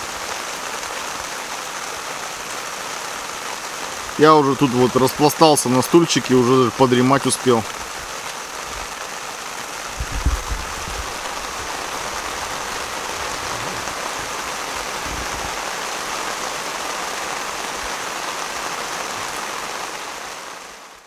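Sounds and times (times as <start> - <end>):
heavy rain pouring: 0.0 - 21.0
low bumps: 10.0 - 15.7.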